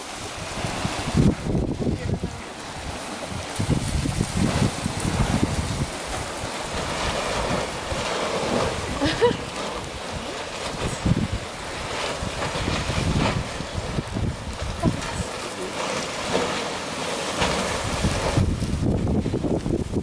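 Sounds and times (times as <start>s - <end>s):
sea surf: 0.0s - 20.0s
wind gusting on microphone: 0.0s - 20.0s.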